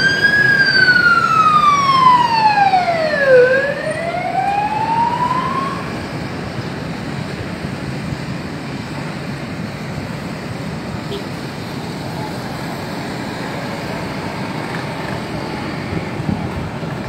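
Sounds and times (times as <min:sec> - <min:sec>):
emergency vehicle siren wailing: 0:00.0 - 0:07.8
steady traffic noise: 0:00.0 - 0:17.0.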